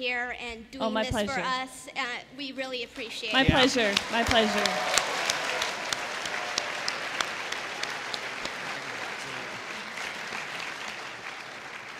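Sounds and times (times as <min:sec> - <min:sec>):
audience applauding: 0:03.4 - 0:11.9.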